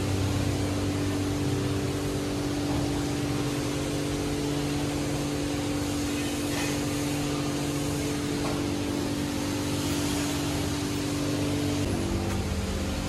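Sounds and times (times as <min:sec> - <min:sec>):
car wash machinery humming: 0:00.0 - 0:13.0
steady hiss: 0:03.1 - 0:13.0.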